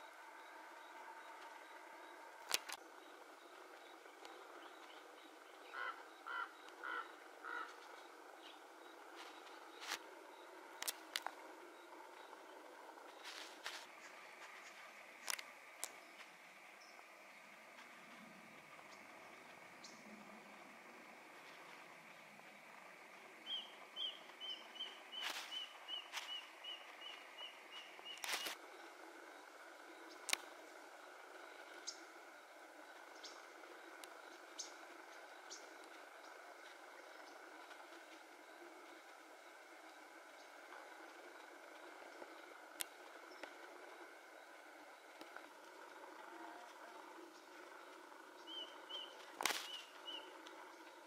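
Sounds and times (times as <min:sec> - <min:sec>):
woodpecker harsh calls: 0:05.6 - 0:07.9
bird chirping: 0:21.4 - 0:37.7, 0:46.2 - 0:51.0.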